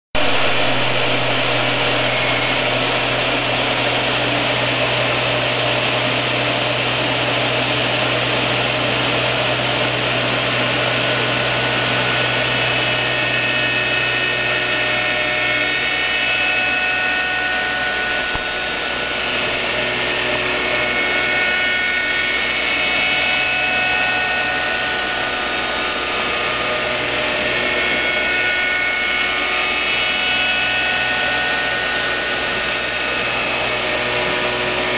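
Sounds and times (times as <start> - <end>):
high cutter whine: 0.2 - 34.9
machine motor hum: 0.2 - 34.9.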